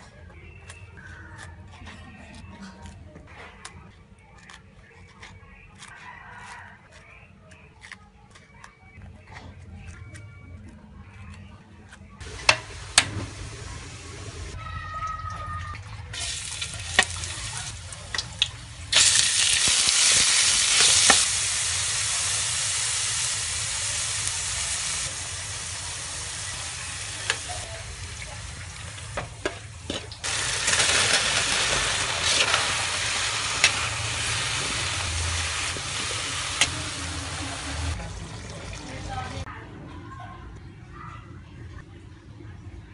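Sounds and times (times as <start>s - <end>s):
frying sizzle in a wok: 12.2s - 14.6s, 16.0s - 39.5s.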